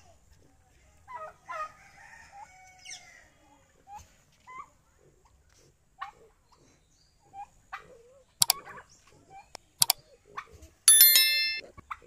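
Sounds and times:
bright ringing chime: 10.9 - 11.6.

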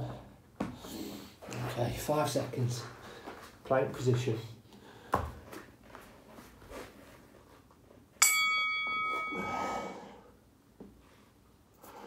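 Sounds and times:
metallic bell-like ring: 8.2 - 10.0
breathy rush of noise: 9.3 - 10.4.

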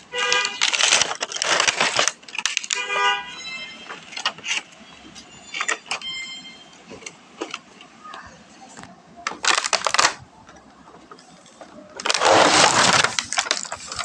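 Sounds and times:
cardboard rustling and scraping: 0.0 - 2.9, 11.0 - 14.0
plastic rubbing squeaks: 0.0 - 7.0, 11.6 - 14.0
light taps and crinkles: 0.3 - 3.0, 12.9 - 14.0.

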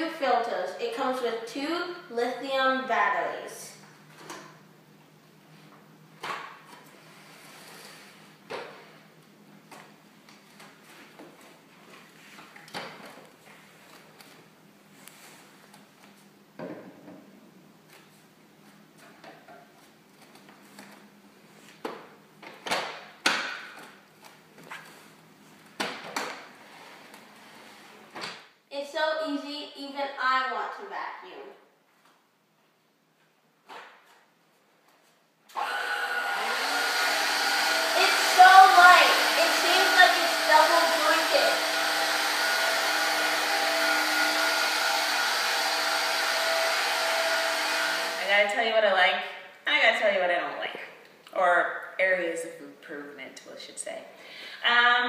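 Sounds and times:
vacuum cleaner running: 35.5 - 48.6
person speaking: 38.0 - 41.7.

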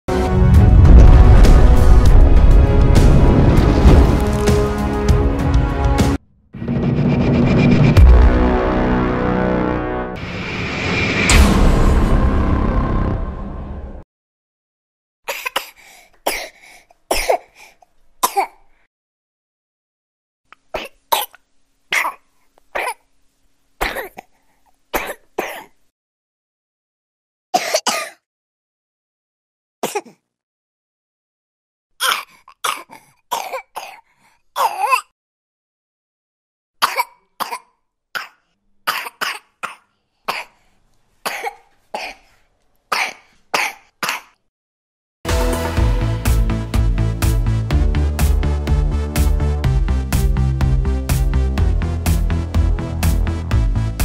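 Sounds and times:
baby coughing: 15.3 - 18.7, 20.7 - 23.1, 23.8 - 25.8, 27.6 - 28.3, 29.8 - 30.2, 32.0 - 35.2, 36.8 - 40.6, 41.2 - 42.3, 42.9 - 44.4.

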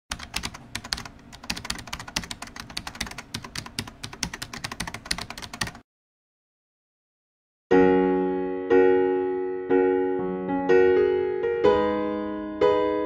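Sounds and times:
computer keyboard typing: 0.1 - 5.8.

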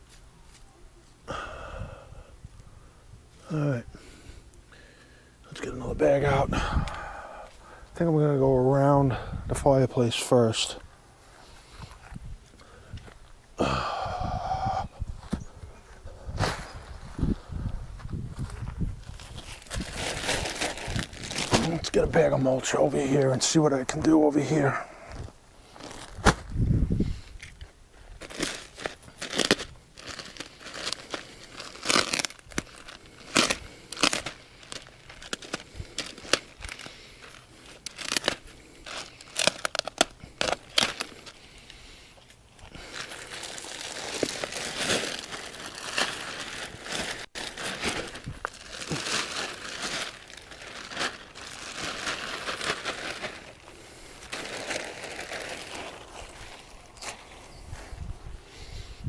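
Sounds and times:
plastic bag crinkling: 19.0 - 24.7, 28.1 - 41.8, 42.6 - 57.4.

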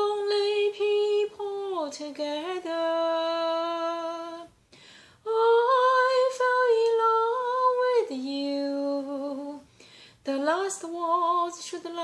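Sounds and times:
woman singing unaccompanied: 0.0 - 4.6, 5.2 - 12.0.

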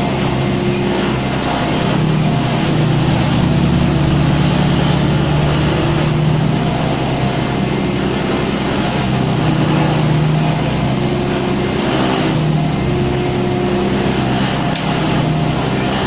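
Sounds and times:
low machine hum: 0.0 - 16.0
silage chopper running: 0.0 - 16.0.

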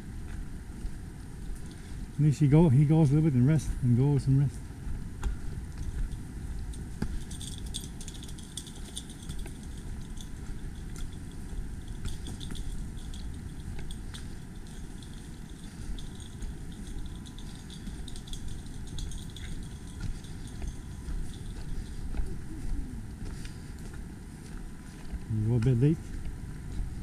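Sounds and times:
hiker's crackling footsteps: 0.0 - 27.0.

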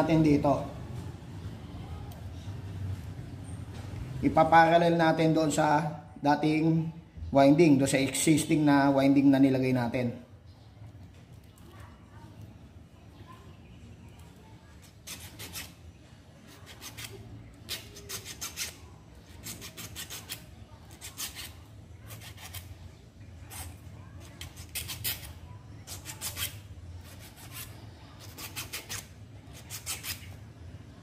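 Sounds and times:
wire rubbing scrapes: 14.8 - 15.8, 16.5 - 20.4, 24.4 - 30.5.

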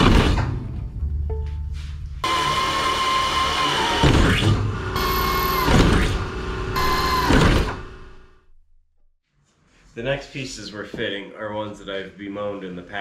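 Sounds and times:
power drill whining: 2.2 - 8.2.

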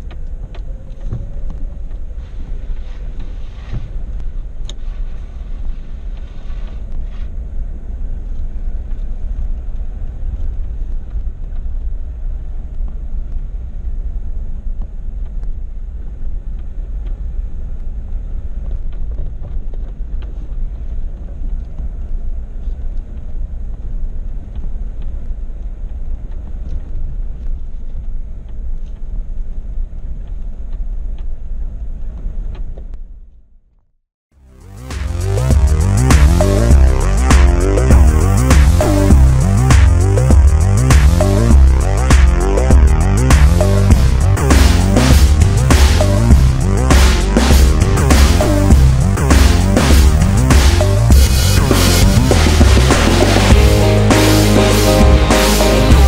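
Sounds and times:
engine and tyres rumbling: 34.6 - 56.0.

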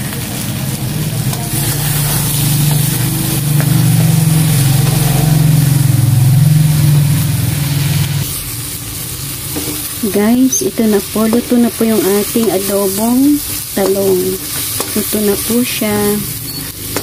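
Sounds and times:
motor engine droning: 1.0 - 8.4.

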